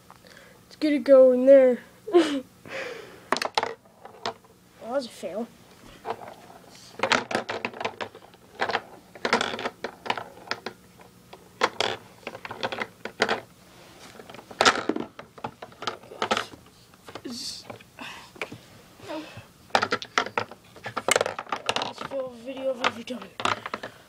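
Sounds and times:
pool balls clacking: 0:03.3 - 0:04.4, 0:06.0 - 0:13.5, 0:14.1 - 0:17.8, 0:19.7 - 0:24.0.

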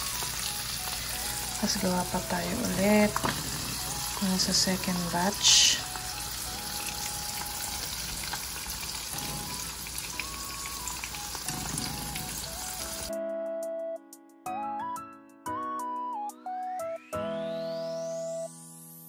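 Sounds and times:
fish frying in oil: 0:00.0 - 0:13.1
soft background music: 0:00.0 - 0:19.0.

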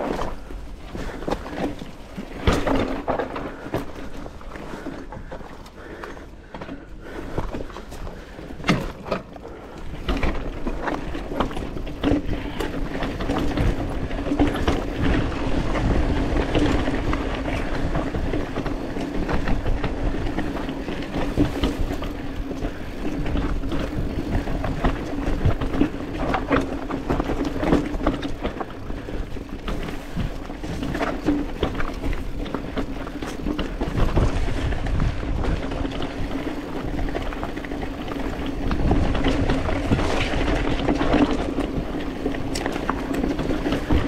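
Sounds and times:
bike rattling and knocking: 0:00.0 - 0:44.0
tyres crunching over rock: 0:00.0 - 0:44.0
wind on microphone: 0:10.0 - 0:44.0.

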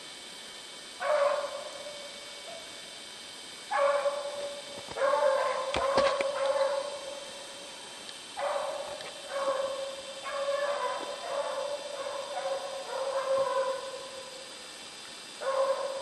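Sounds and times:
dog baying: 0:05.0 - 0:07.0, 0:08.5 - 0:14.0.

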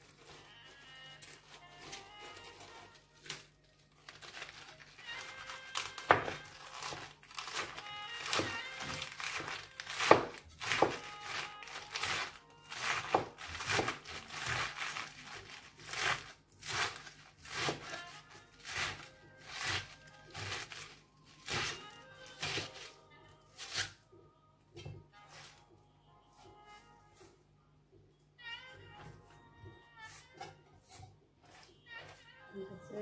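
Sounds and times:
quiet background music: 0:00.0 - 0:33.0
knife chopping lettuce on board: 0:05.7 - 0:22.9, 0:23.6 - 0:24.0, 0:30.1 - 0:32.2.

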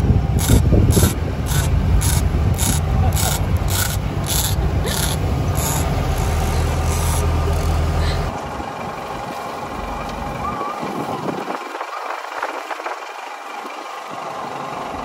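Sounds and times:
boat engine rumble: 0:00.0 - 0:15.0
fishing reel rasping: 0:00.4 - 0:08.3.

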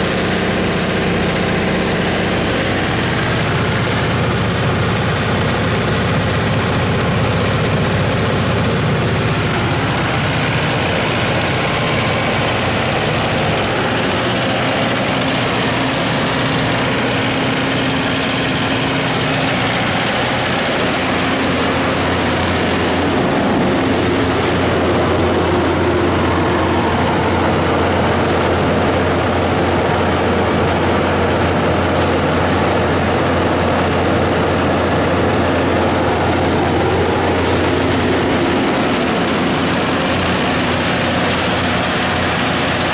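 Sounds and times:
diesel generator running: 0:00.0 - 0:42.9.

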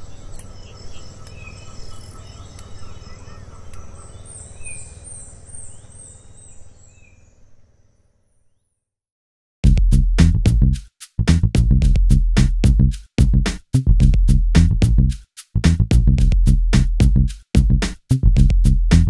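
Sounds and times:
birds calling: 0:00.0 - 0:08.0
insects chirping in high trills: 0:00.0 - 0:08.4
electronic music with heavy beat: 0:09.6 - 0:19.0.

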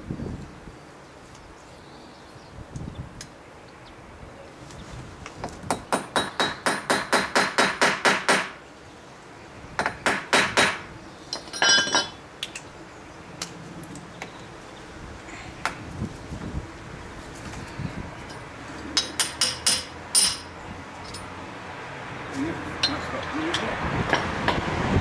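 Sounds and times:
ringing metal clink: 0:11.3 - 0:12.2, 0:19.0 - 0:21.3.

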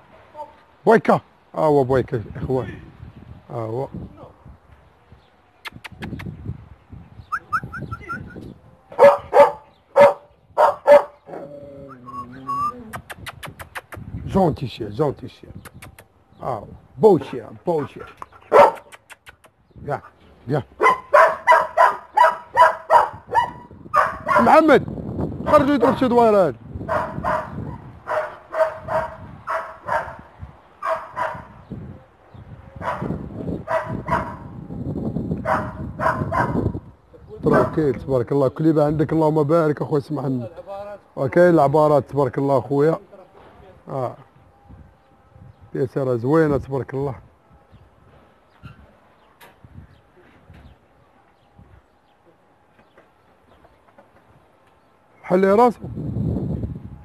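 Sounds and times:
dog barking: 0:09.0 - 0:11.2, 0:18.5 - 0:18.9, 0:20.8 - 0:24.5, 0:26.9 - 0:31.6, 0:32.8 - 0:34.5, 0:35.4 - 0:36.7, 0:37.5 - 0:37.8.

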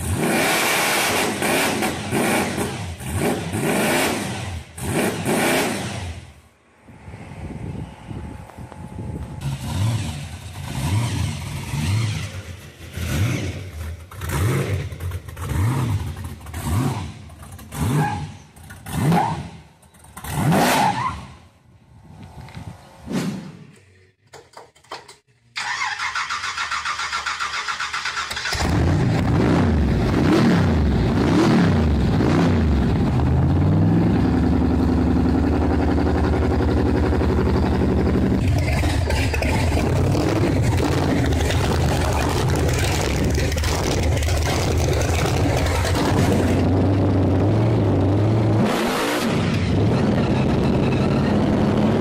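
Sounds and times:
engine revving and running: 0:00.0 - 0:21.3, 0:25.6 - 0:52.0
engine starter cranking: 0:24.2 - 0:29.0.

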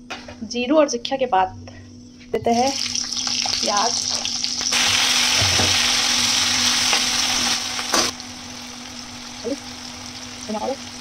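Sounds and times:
onions sizzling in hot oil: 0:02.6 - 0:11.0.

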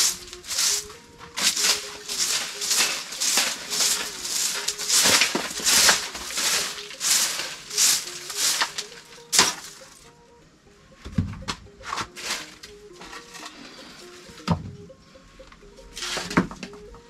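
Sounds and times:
broom sweeping earth floor: 0:00.0 - 0:10.0, 0:11.8 - 0:14.4, 0:16.0 - 0:16.5.

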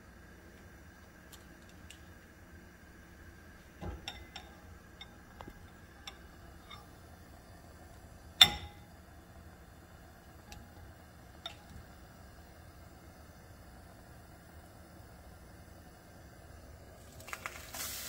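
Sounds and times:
ceramic bowl ringing: 0:04.0 - 0:05.2, 0:08.4 - 0:08.9
tongs clicking against ceramic bowl: 0:04.0 - 0:06.9.

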